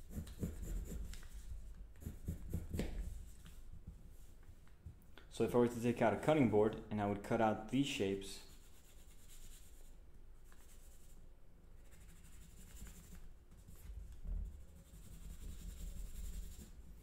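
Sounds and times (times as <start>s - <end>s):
pencil scratching on paper: 0.0s - 3.5s, 8.4s - 11.2s, 11.8s - 16.8s.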